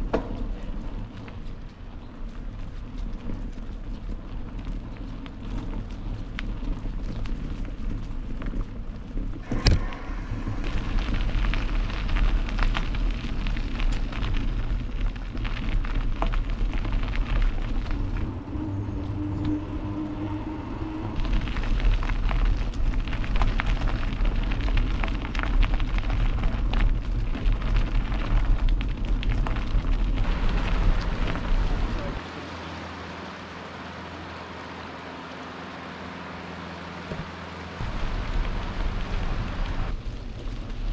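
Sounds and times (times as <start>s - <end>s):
bike rattling: 0.0s - 32.2s, 37.0s - 40.9s
wind buffeting microphone: 0.0s - 32.2s
river flowing: 30.3s - 39.9s.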